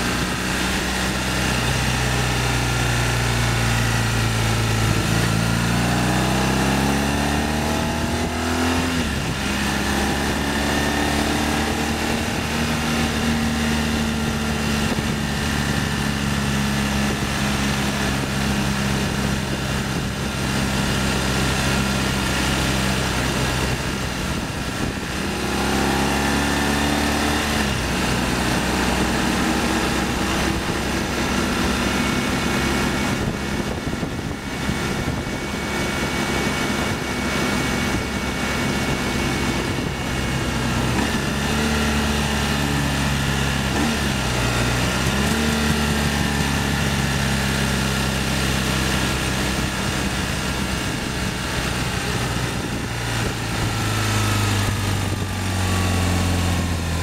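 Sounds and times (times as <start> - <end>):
motorcycle engine running: 0.0 - 57.0
wind rushing: 27.6 - 41.6.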